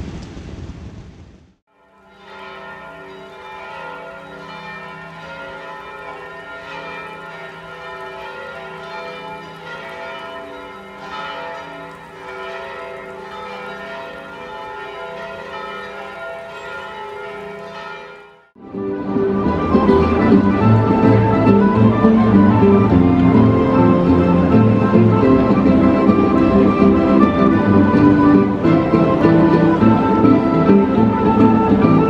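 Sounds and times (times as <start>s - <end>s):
church bells pealing: 1.7s - 32.0s.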